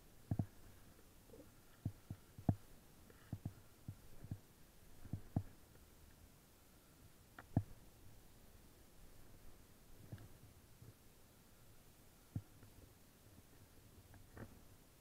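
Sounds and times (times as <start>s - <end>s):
soft low thumps: 3.3s - 5.6s.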